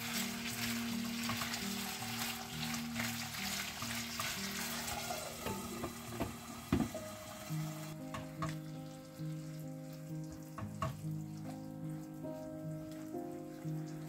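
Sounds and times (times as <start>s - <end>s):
spatula stirring and tapping pan: 0.0s - 4.8s, 8.0s - 8.7s, 10.4s - 13.7s
chicken sizzling in oil: 0.0s - 14.0s
soft background music: 0.0s - 14.0s
glass lid knock: 5.4s - 7.0s.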